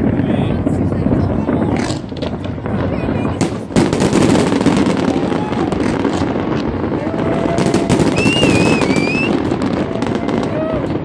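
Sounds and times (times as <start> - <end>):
fireworks crackling and popping: 0.0 - 11.0
high wavering whistle: 8.2 - 9.4.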